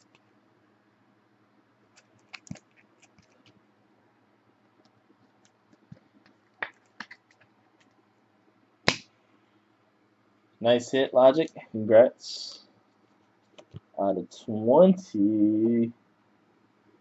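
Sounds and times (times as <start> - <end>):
trading cards clicking and scraping: 1.9 - 3.6, 5.8 - 7.9.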